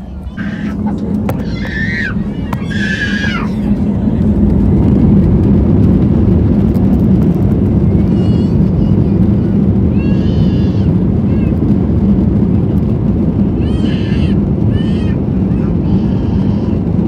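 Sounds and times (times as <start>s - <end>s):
jet engines rumbling in cabin: 0.0s - 17.0s
high-pitched cries: 1.4s - 3.8s.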